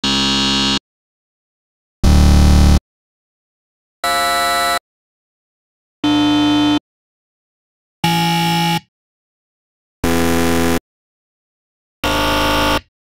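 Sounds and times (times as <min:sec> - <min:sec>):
game-show wrong-answer buzzer: 0:00.0 - 0:00.8, 0:02.0 - 0:02.8, 0:04.0 - 0:04.8, 0:06.0 - 0:06.8, 0:08.0 - 0:08.9, 0:10.0 - 0:10.8, 0:12.0 - 0:12.9.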